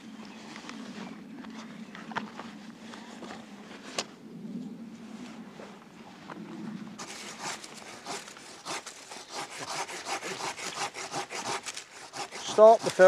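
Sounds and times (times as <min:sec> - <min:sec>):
hand saw cutting wood: 0:07.0 - 0:13.0.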